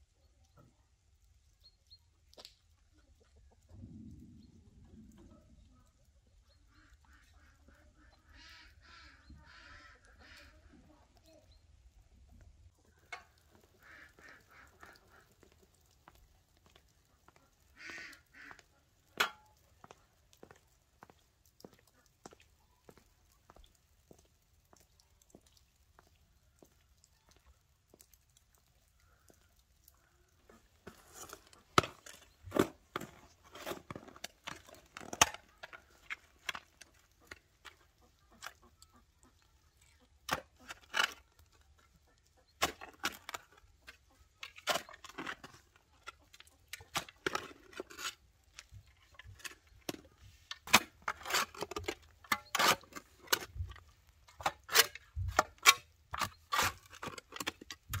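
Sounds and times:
shovel digging into soil: 0:30.9 - 0:35.8.

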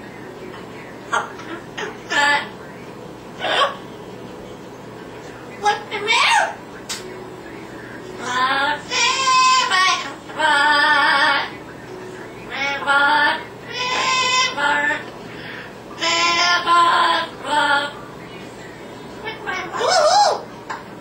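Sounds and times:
parrot vocalizing phrases: 0:01.1 - 0:02.5, 0:03.4 - 0:03.8, 0:05.6 - 0:06.6, 0:08.2 - 0:11.5, 0:12.4 - 0:15.0, 0:16.0 - 0:18.0, 0:19.2 - 0:20.4.

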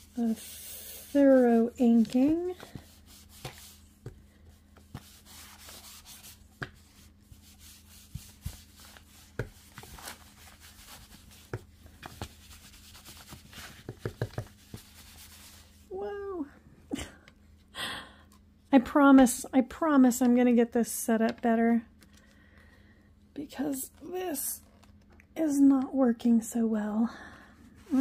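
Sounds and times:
ink pad scuffing on paper: 0:00.0 - 0:15.8
ink pad tapping paper: 0:07.8 - 0:10.0, 0:10.8 - 0:15.2.

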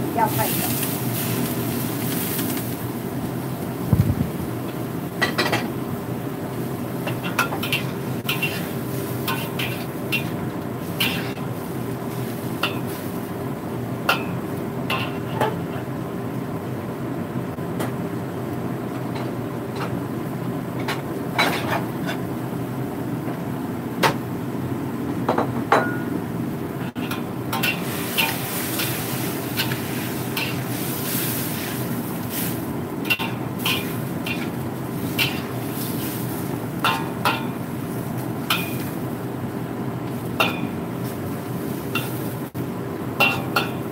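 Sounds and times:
metal spatula scraping pan: 0:07.5 - 0:10.3.

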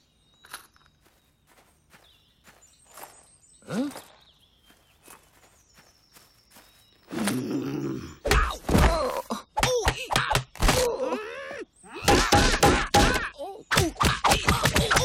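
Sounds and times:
cartoon grunts and grumbling: 0:07.1 - 0:15.0
cartoon character groaning: 0:07.3 - 0:15.0.

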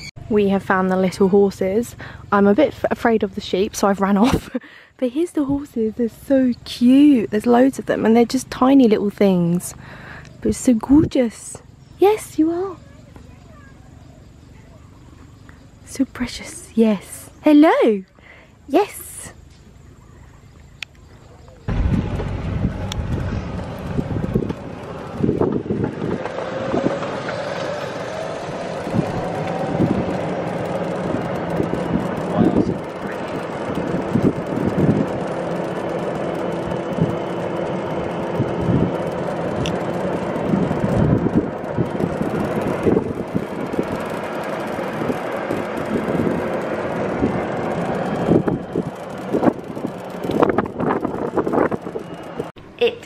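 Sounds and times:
golf cart driving: 0:00.0 - 0:18.0, 0:19.0 - 0:53.0
cart knocks and rattles: 0:21.7 - 0:52.5
wind rushing over microphone: 0:21.7 - 0:52.6.

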